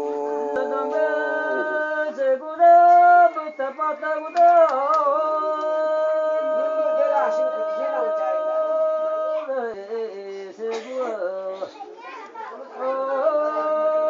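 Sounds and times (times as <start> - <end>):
voices singing long held notes: 0.0 - 9.6.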